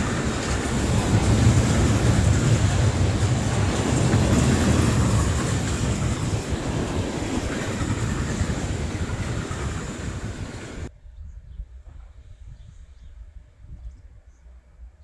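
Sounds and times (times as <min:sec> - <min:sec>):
train wheels rumbling on rails: 0:00.0 - 0:10.9.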